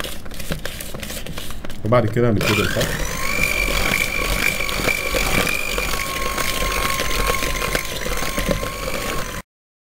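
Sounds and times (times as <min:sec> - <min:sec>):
beaters clicking in bowl: 0:01.9 - 0:09.4
electric hand mixer whine: 0:02.4 - 0:09.5.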